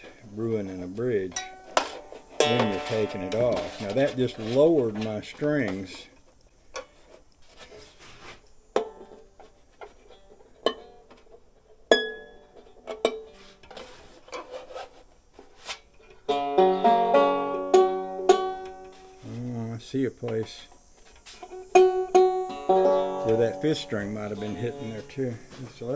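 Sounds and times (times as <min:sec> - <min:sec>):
banjo strings clicking: 0:01.2 - 0:05.8, 0:16.3 - 0:19.0, 0:21.7 - 0:25.2
banjo strings strummed: 0:01.3 - 0:05.7, 0:16.3 - 0:19.3, 0:21.6 - 0:25.9
single plucked banjo notes: 0:02.4 - 0:04.6, 0:16.3 - 0:19.0, 0:21.7 - 0:25.2.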